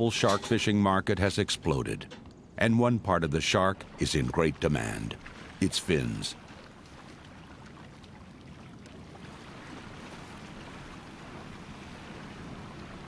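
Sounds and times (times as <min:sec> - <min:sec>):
wind: 0:00.0 - 0:13.0
sea water rushing: 0:03.1 - 0:13.0.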